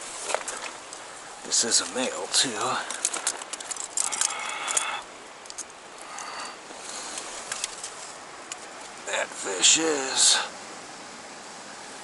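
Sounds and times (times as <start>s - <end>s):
river water flowing: 0.0s - 12.0s
rustling and clicking: 1.7s - 9.0s.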